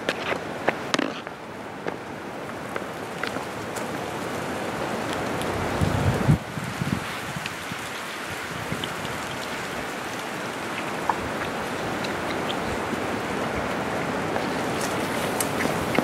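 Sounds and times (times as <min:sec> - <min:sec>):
steady rushing outdoor noise: 0:00.0 - 0:16.0.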